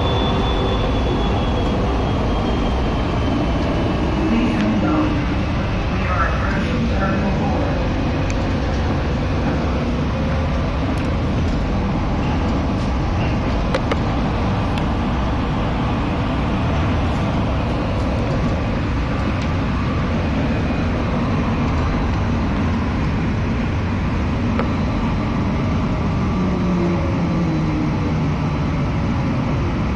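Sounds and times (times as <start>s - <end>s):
train cabin rumble and hiss: 0.0s - 29.9s.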